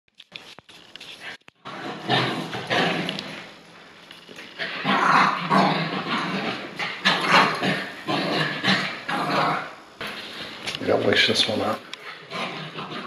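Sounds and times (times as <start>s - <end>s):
dogs barking and growling: 1.6s - 3.6s, 4.4s - 10.6s, 11.8s - 13.0s.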